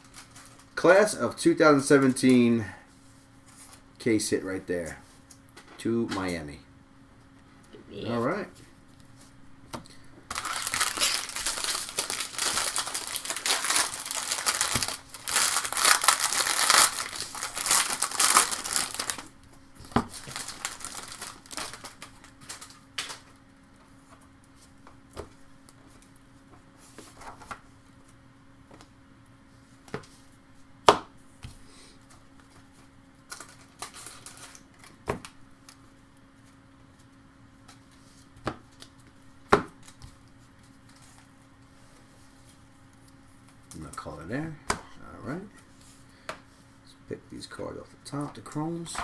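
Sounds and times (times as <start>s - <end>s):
card pack wrapper tearing: 10.3s - 19.3s, 20.1s - 23.2s.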